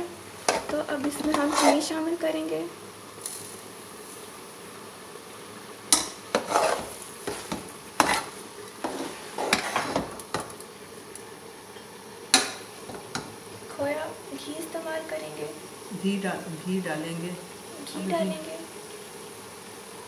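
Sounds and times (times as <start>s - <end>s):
faint cooking hiss: 0.0s - 20.0s
metal spoon scraping a pot: 0.5s - 1.9s, 6.0s - 10.1s.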